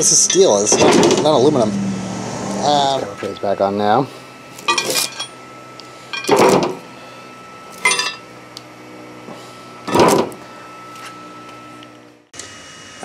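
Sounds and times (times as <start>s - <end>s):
metal motor cover clanking: 0.0s - 1.6s, 4.6s - 5.4s, 6.1s - 6.9s, 7.7s - 8.3s, 9.9s - 10.4s.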